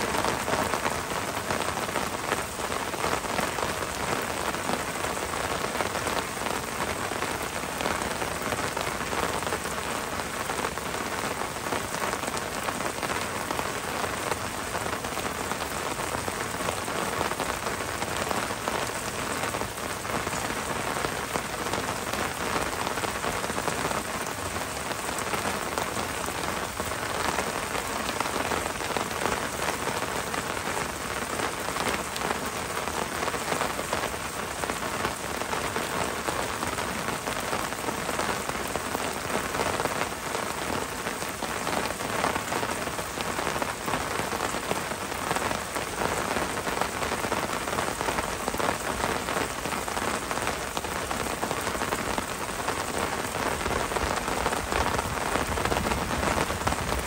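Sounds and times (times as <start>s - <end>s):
heavy rain on a wooden roof: 0.0s - 57.0s.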